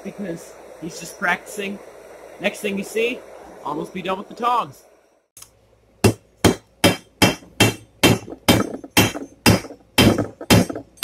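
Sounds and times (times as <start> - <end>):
hammer striking metal on anvil: 6.0 - 11.0.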